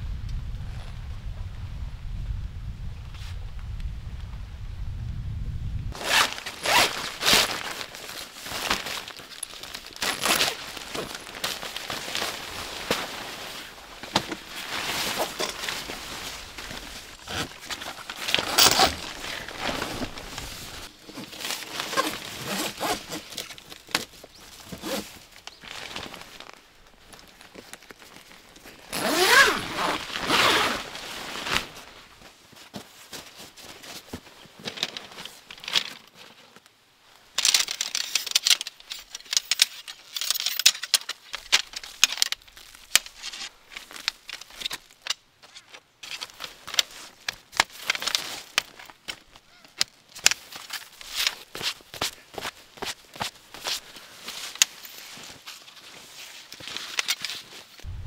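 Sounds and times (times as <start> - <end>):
nylon fabric rustling: 5.9 - 35.4, 50.2 - 58.0.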